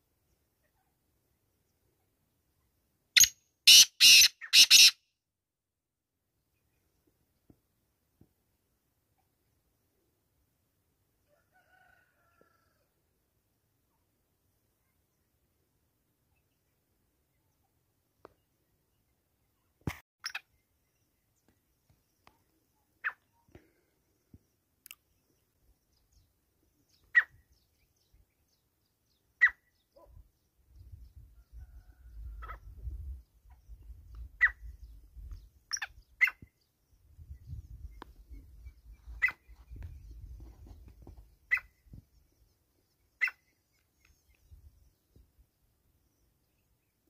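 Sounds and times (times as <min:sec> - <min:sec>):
bird sharp call notes: 0:03.2 - 0:05.0.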